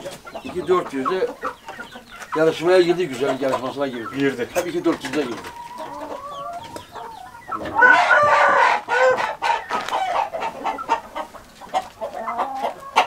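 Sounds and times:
chickens clucking: 0:00.0 - 0:13.0
rooster crowing: 0:07.6 - 0:10.2.

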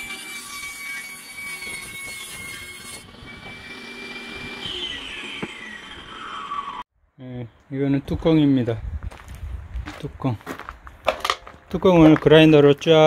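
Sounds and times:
table saw motor whine: 0:00.0 - 0:06.9.

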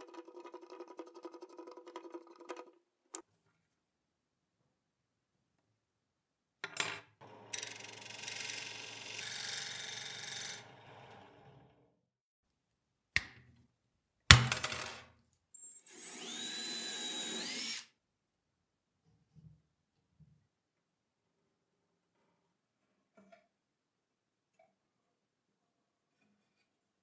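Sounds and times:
tool cutting spinning wood: 0:07.6 - 0:11.5, 0:15.6 - 0:17.9
cordless drill whirring: 0:15.6 - 0:17.9.

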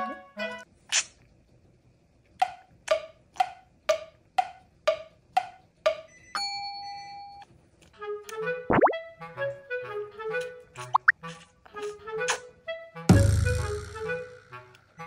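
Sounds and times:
wood block knocks: 0:02.4 - 0:06.1.

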